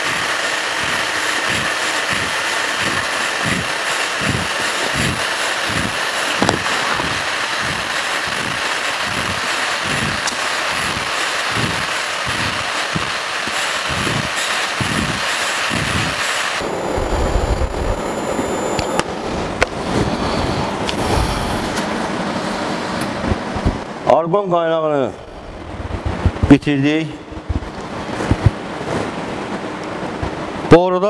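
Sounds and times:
welding arc hissing: 0:00.0 - 0:23.9
low rumble: 0:13.9 - 0:22.2, 0:25.1 - 0:29.2.

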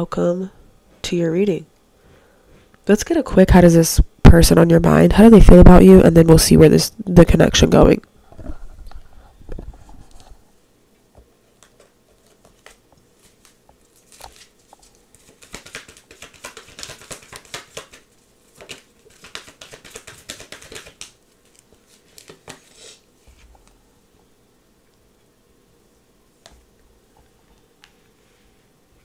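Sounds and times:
cards being shuffled: 0:11.5 - 0:23.8.

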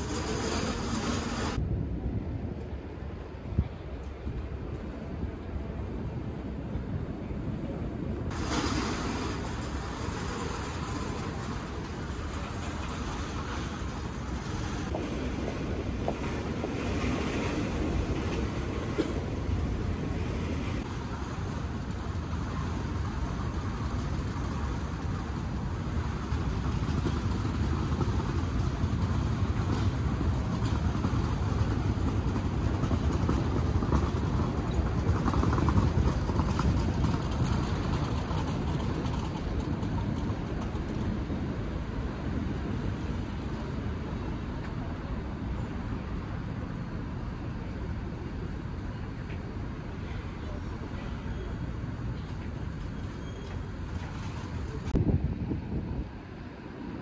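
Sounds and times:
road traffic noise: 0:00.0 - 0:57.0.

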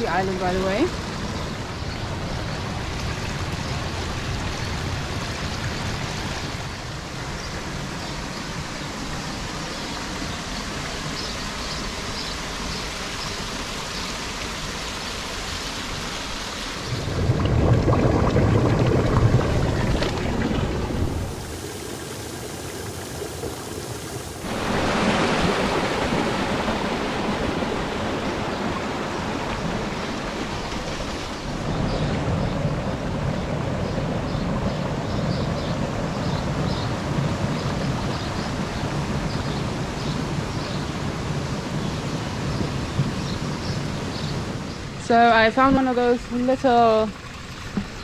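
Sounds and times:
deep rumble: 0:16.9 - 0:21.4.

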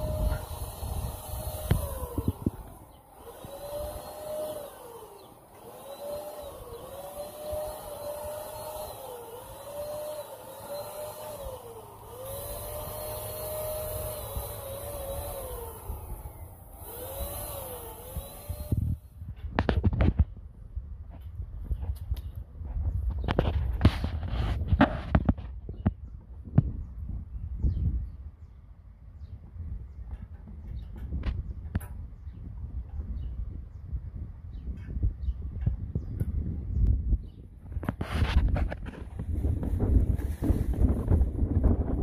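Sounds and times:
paint sprayer hissing: 0:00.0 - 0:19.0
sprayer motor tone: 0:00.0 - 0:19.1.

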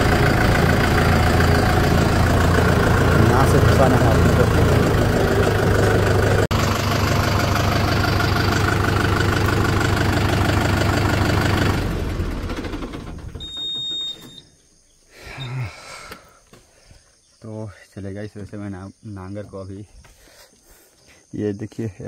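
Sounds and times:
diesel tractor engine running: 0:00.0 - 0:14.4.

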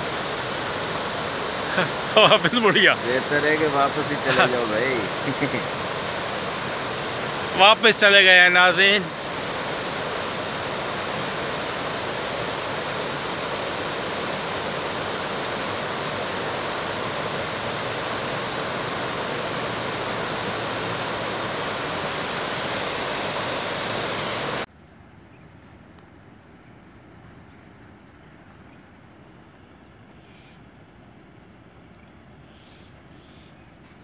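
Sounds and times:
floodwater rushing: 0:00.0 - 0:24.7
quiet hiss: 0:00.0 - 0:34.0.

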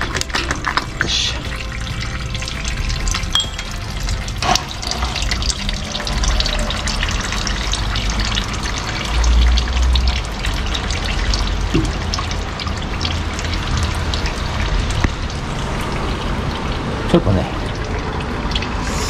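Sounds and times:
oil splashing into a pan: 0:00.0 - 0:19.0
small drips and clicks: 0:00.0 - 0:19.0
low rumble: 0:02.6 - 0:10.2.

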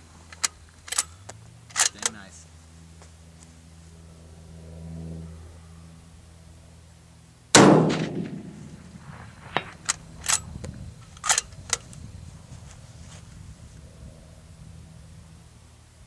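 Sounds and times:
sharp metallic clicks: 0:00.3 - 0:02.3, 0:09.5 - 0:12.0
rifle shot: 0:07.5 - 0:10.5.

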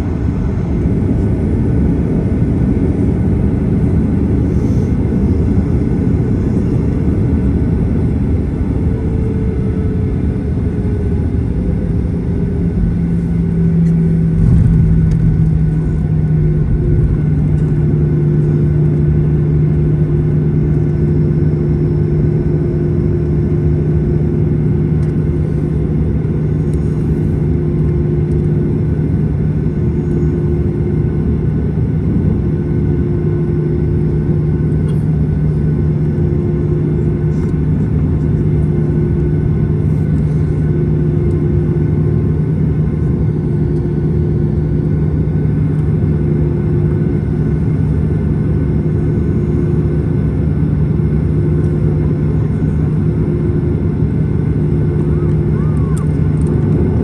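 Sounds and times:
jet engines rumbling: 0:00.0 - 0:57.0
steady low hum: 0:00.0 - 0:57.0.

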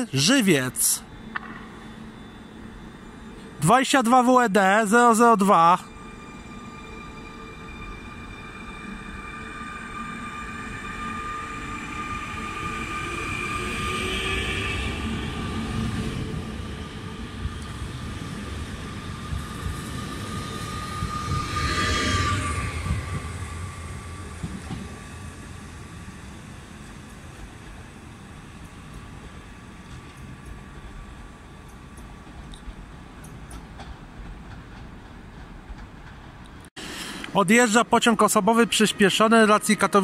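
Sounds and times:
electric train whining: 0:00.0 - 0:40.0
train wheels squealing: 0:05.8 - 0:27.4.

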